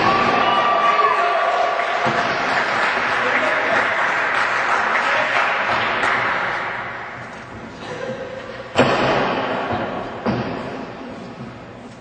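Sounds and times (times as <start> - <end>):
crowd noise: 0.0 - 11.5
sharp impacts in wrestling ring: 8.8 - 10.9.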